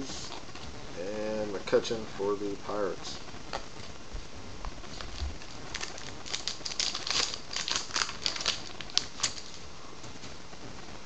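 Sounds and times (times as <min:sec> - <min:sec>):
wrapper crinkling and tearing: 0:04.8 - 0:09.6.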